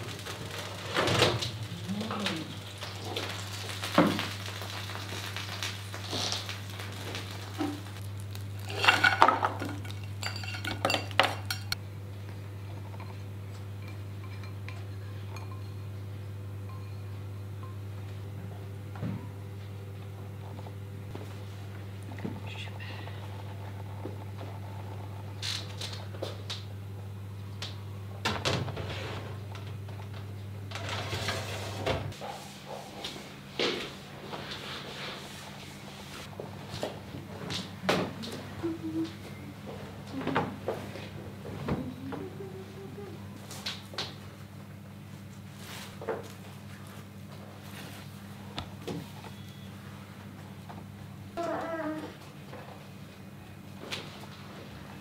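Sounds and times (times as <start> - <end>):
steady low hum: 0.0 - 55.0
ceramic bowl clinking on tray: 9.9 - 11.8.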